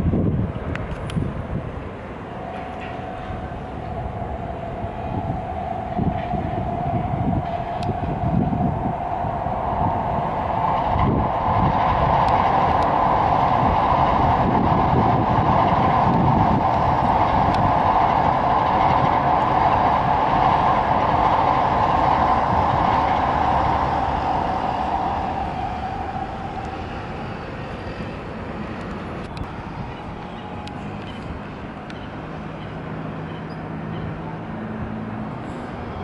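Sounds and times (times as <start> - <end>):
bullet train passing: 0.0 - 36.0.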